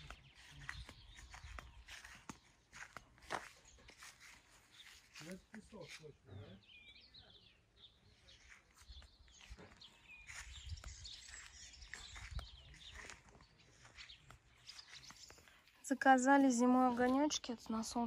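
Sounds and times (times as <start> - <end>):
footsteps on grass: 0.0 - 6.3, 8.2 - 15.8
faint birdsong chirps: 0.0 - 18.0.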